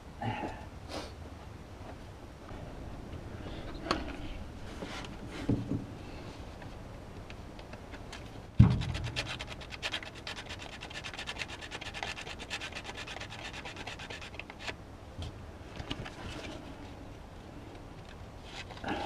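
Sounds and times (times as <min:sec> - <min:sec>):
thump: 0:08.6 - 0:09.0
sandpaper scraping: 0:08.7 - 0:14.8.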